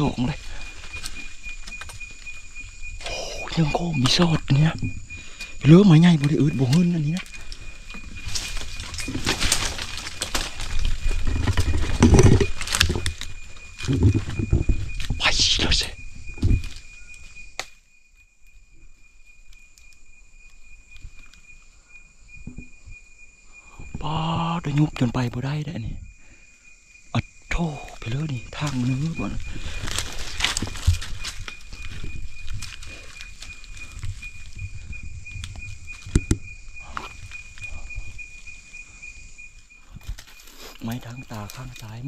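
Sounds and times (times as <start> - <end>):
steady high-pitched tone: 0.0 - 9.8
insect trilling: 0.0 - 42.0
rustling: 6.1 - 15.2, 28.5 - 42.0
faint ticks of movement: 19.2 - 21.8
footsteps: 28.6 - 34.7.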